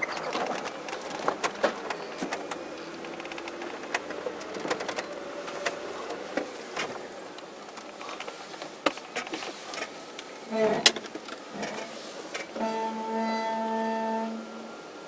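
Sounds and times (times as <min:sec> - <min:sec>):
faint engine note: 0:12.6 - 0:15.0.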